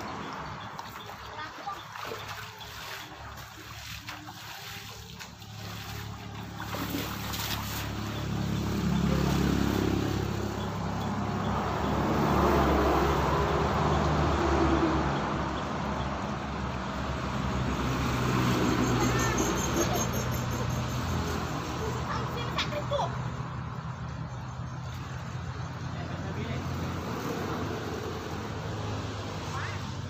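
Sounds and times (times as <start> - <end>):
water sloshing and splashing: 0.0 - 20.3.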